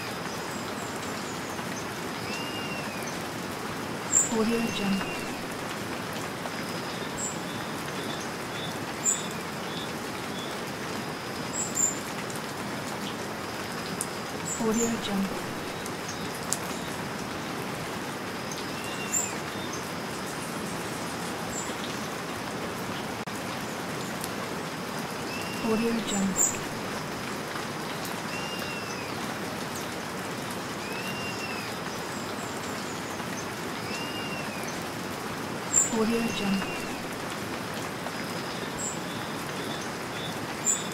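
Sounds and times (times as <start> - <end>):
steady rain hiss: 0.0 - 40.9
whistled bird call: 2.3 - 3.0.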